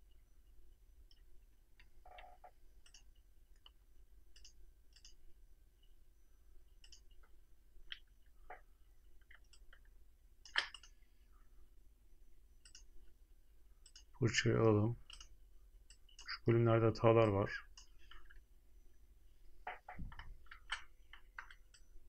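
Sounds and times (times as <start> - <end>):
low room hum: 0.0 - 22.0
mouse and keyboard clicks: 1.1 - 5.2, 6.8 - 7.3, 9.2 - 11.0, 15.0 - 15.3.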